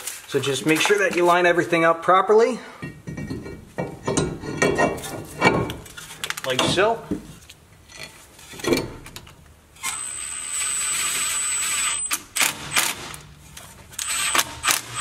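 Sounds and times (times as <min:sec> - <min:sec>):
impact driver trigger bursts: 0:09.8 - 0:13.3, 0:14.0 - 0:15.0
impact driver whirring: 0:09.8 - 0:13.3, 0:14.0 - 0:15.0.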